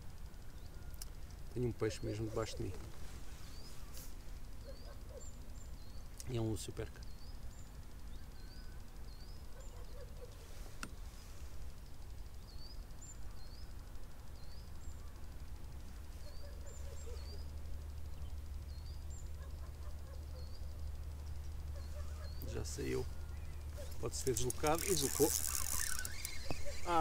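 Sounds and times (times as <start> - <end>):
small bird chirping: 0.0 - 27.0.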